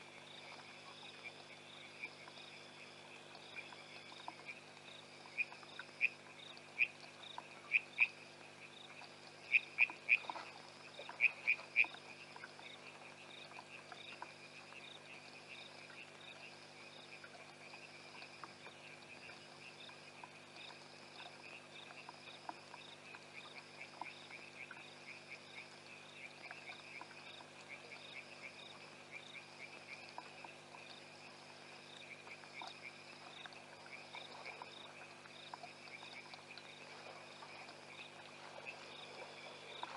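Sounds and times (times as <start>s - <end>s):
frogs clicking calls: 0.0s - 39.9s
higher pulsed frog call: 9.4s - 12.4s.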